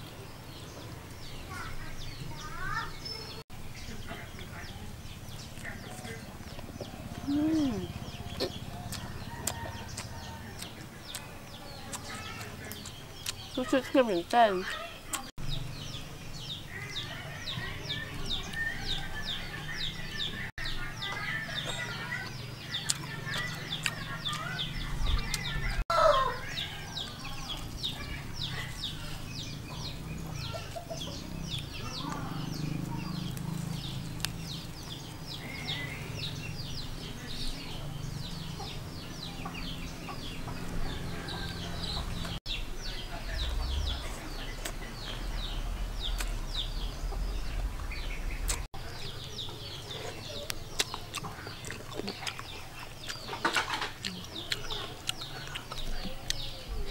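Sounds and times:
chicks cheeping: 0:00.0 - 0:56.9
chickens clucking: 0:05.6 - 0:14.1, 0:17.5 - 0:56.9
steady low hum: 0:42.4 - 0:49.6.

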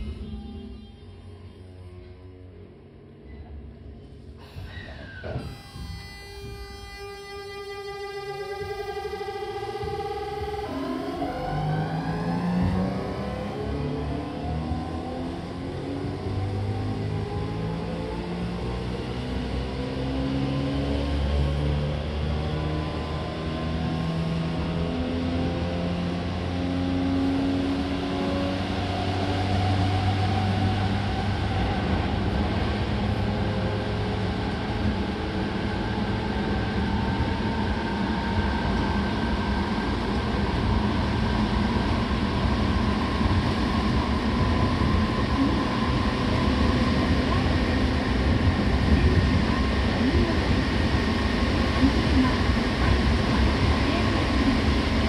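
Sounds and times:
electric train motor whine: 0:05.4 - 0:16.2.

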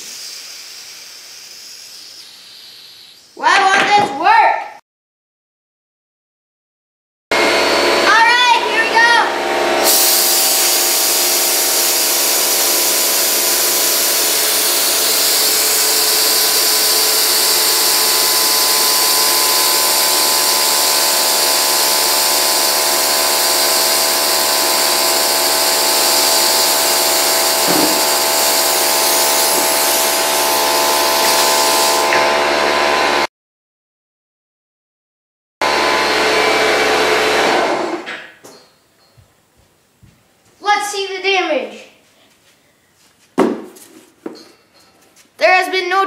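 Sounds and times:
compressed air hissing: 0:00.0 - 0:03.4, 0:09.8 - 0:32.2
fidget spinner whine: 0:00.0 - 0:03.4, 0:09.7 - 0:32.2
brief knock: 0:27.7 - 0:28.0.

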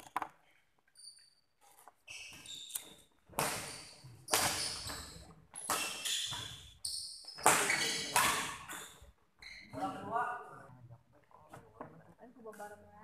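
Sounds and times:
shoes squeaking on court floor: 0:00.9 - 0:10.0.

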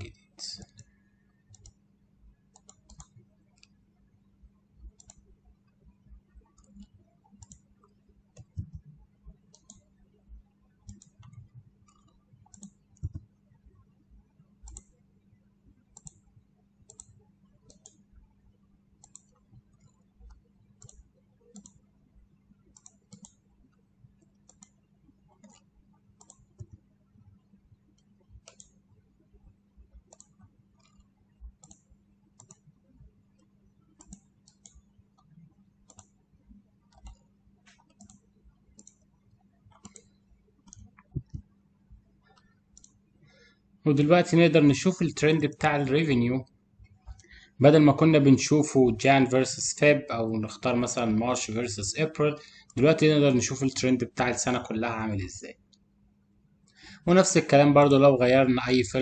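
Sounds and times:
computer mouse clicking: 0:00.0 - 0:01.8, 0:02.4 - 0:03.8, 0:04.8 - 0:18.2, 0:18.9 - 0:21.9, 0:22.5 - 0:43.6, 0:46.8 - 0:47.5
faint low hum: 0:00.0 - 0:59.0.

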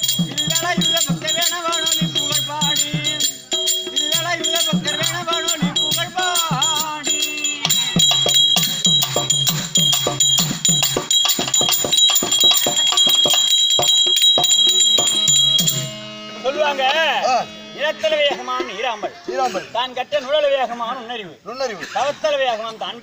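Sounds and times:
hand drums played quickly: 0:00.0 - 0:16.0
wavering melody line: 0:00.0 - 0:18.9
metallic ringing: 0:00.0 - 0:19.6.

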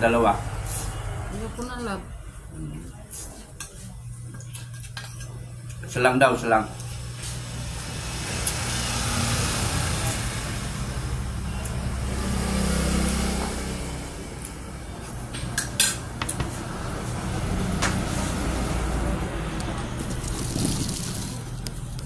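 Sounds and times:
motor vehicle passing: 0:00.0 - 0:02.4, 0:06.8 - 0:22.0
cutlery clinking on plates: 0:04.4 - 0:05.4.

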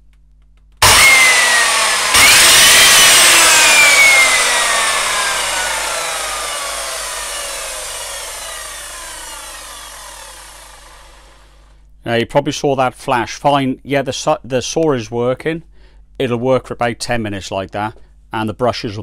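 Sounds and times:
mitre saw motor whining: 0:00.8 - 0:11.7.

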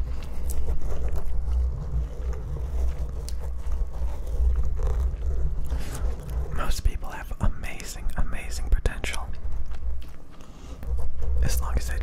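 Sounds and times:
hand rubbing microphone windscreen: 0:00.0 - 0:08.0, 0:09.4 - 0:12.0.

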